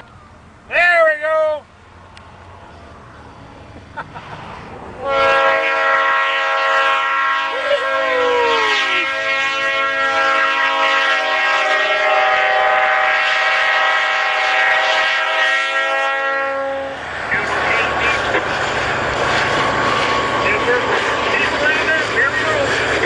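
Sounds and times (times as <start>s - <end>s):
locomotive air horn blast: 5.0s - 18.6s.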